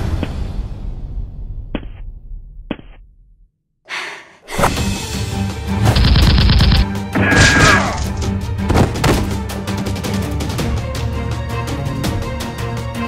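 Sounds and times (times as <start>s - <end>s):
action film background music: 4.5s - 13.0s.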